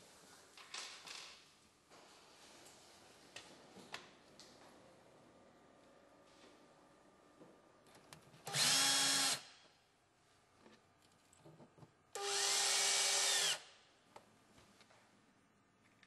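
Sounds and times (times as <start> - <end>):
cordless drill motor whine: 8.5 - 9.4, 12.2 - 13.7.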